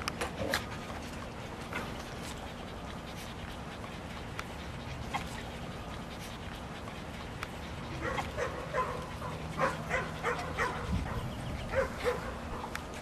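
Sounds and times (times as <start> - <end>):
dog yipping: 7.8 - 12.7.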